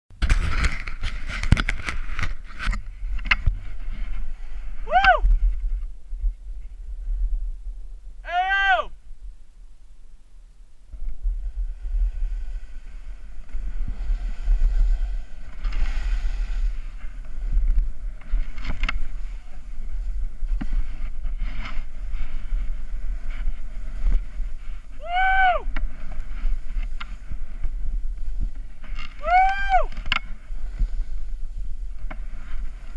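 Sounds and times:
wind buffeting microphone: 0.2s - 8.3s, 10.8s - 32.9s
snowboard scraping on snow: 0.3s - 7.6s, 11.0s - 32.9s
short high call: 8.2s - 9.0s.

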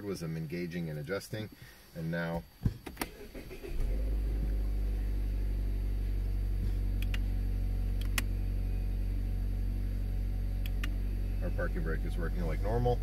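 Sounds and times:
car engine idling: 3.0s - 13.0s.

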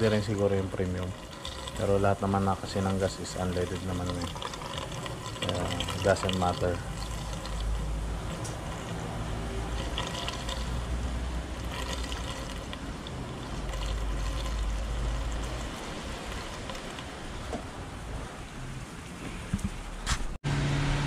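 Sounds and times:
fuel trickling through funnel: 0.0s - 18.5s.

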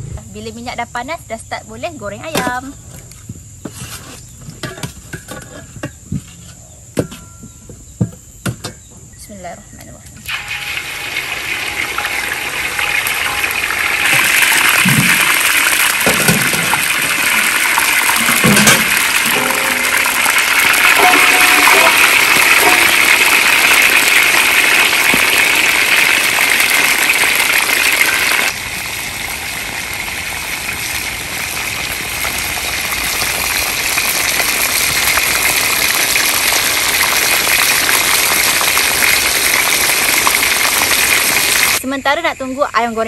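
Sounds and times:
chicken deep-frying in oil: 10.2s - 41.8s.

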